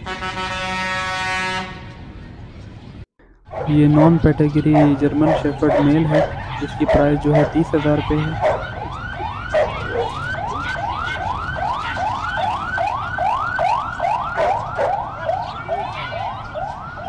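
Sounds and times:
electronic siren yelping: 3.5 - 17.0.

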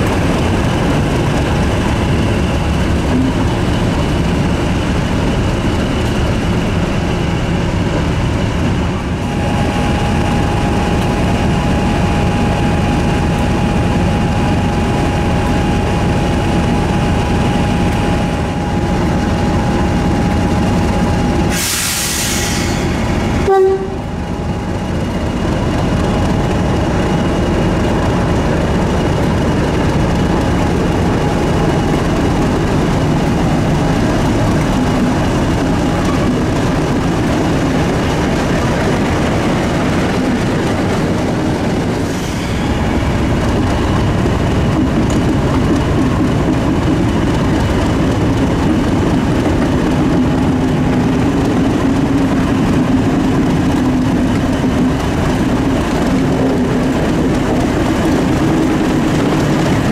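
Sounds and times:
diesel locomotive engine running: 0.0 - 59.9
loud air hiss: 21.5 - 23.3
locomotive horn note: 23.4 - 24.2.

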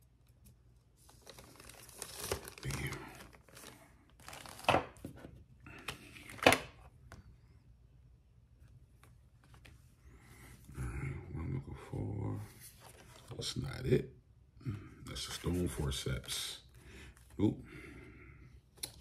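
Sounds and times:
crinkling rustle of handled material: 0.3 - 5.0.

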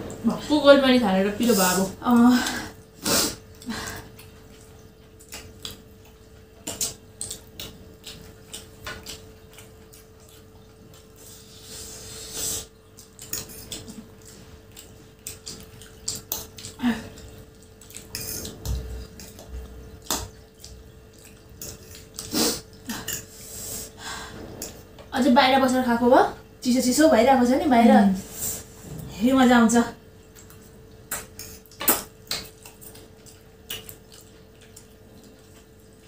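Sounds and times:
faint steady hum: 0.0 - 36.0
chewing and mouth noises: 2.0 - 23.6, 30.2 - 36.0.

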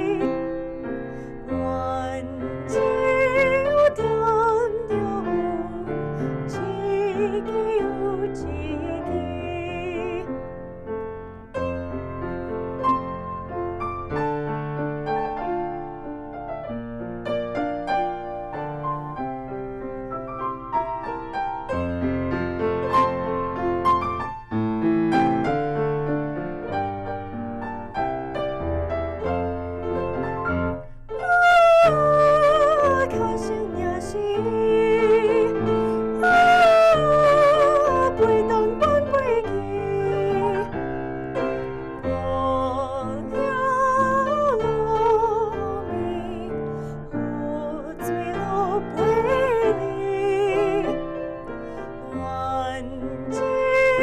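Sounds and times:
woman singing classical style: 0.0 - 12.8, 29.9 - 54.0
grand piano: 0.0 - 54.0.

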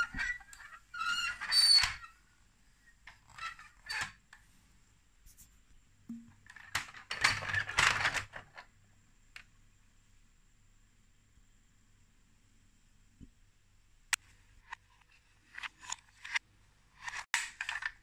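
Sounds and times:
plastic toy bricks clattering: 6.5 - 8.6, 17.0 - 18.0.

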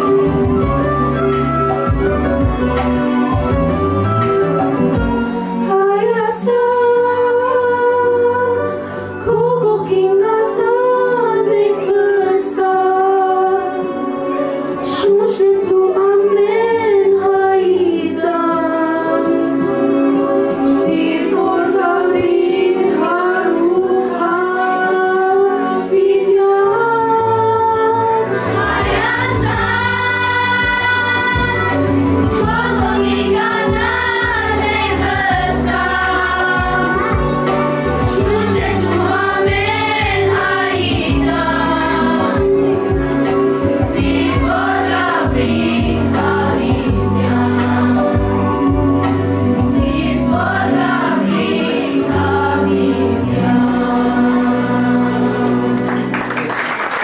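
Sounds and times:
instrumental accompaniment: 0.0 - 57.0
girl singing into microphone: 5.6 - 13.9, 14.8 - 20.0, 20.7 - 28.3, 36.1 - 41.2
children's choir singing: 5.6 - 56.3.

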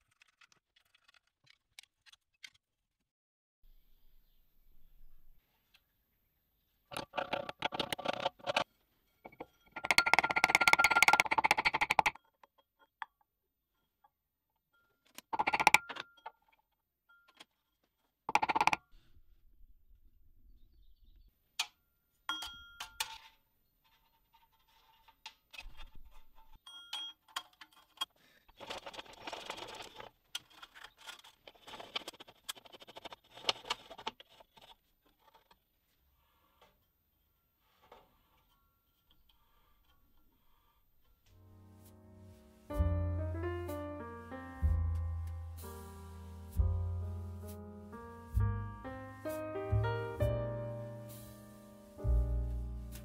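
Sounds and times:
metal parts scraping and clinking: 22.8 - 35.6.

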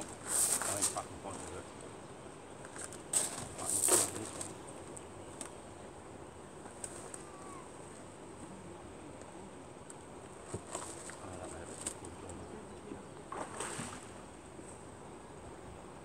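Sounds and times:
faint outdoor hiss: 0.0 - 16.0
fish splashing in water: 13.3 - 14.2.

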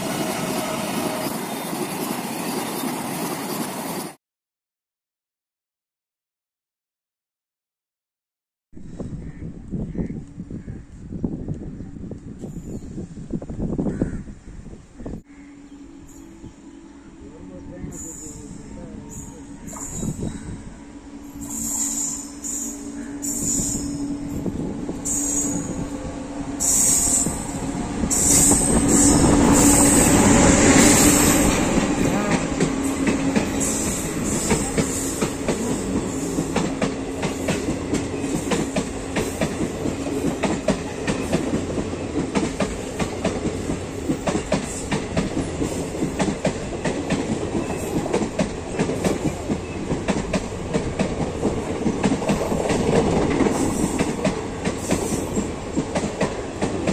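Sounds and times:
electric locomotive humming: 0.0 - 4.2, 9.0 - 56.9
train wheels clicking on rail joints: 26.5 - 56.9.

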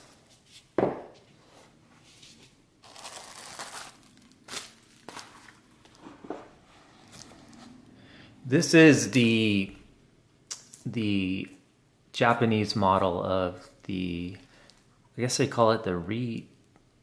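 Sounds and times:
bubble wrap crinkling: 2.8 - 6.0.

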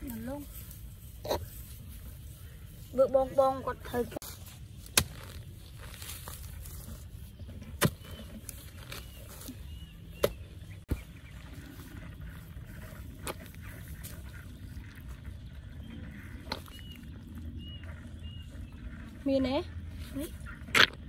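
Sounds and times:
low rumble: 0.0 - 21.0
digging tool knocking dry soil: 4.3 - 11.2.

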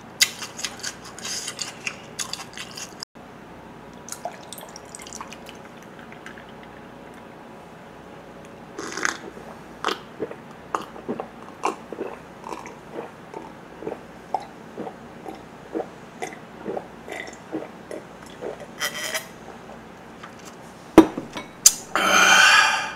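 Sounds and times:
man gulping a drink: 8.8 - 19.8.

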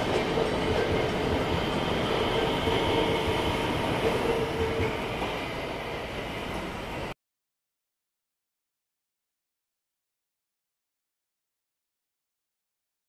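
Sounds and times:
train wheel and rail rumble: 0.0 - 7.2.

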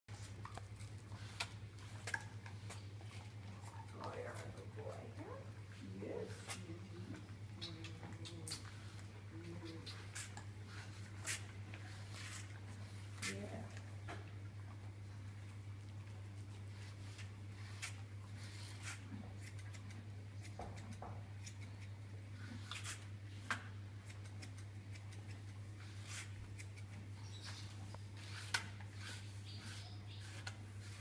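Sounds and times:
steady low hum: 0.1 - 31.0.

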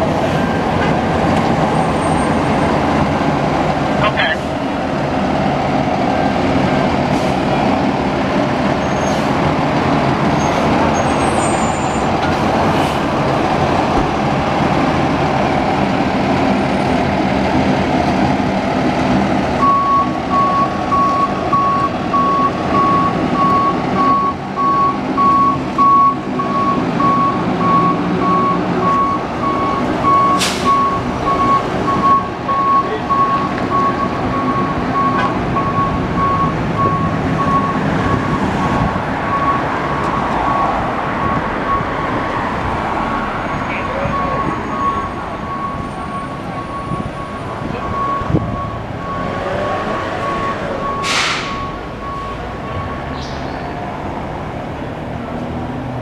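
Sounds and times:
reversing alarm beeping: 19.6 - 38.5, 39.3 - 39.7, 40.4 - 42.0, 43.8 - 53.4
air brakes hissing: 30.3 - 30.8, 51.0 - 51.8.

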